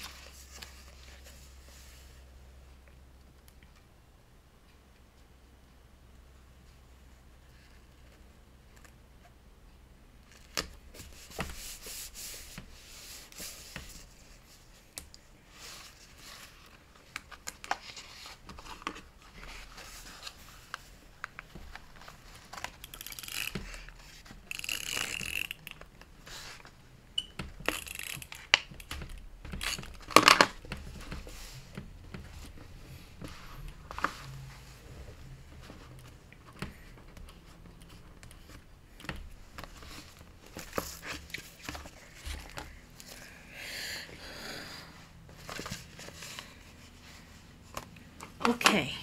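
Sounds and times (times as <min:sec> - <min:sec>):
paper rustling and crinkling: 0:15.5 - 0:26.8, 0:45.3 - 0:48.0.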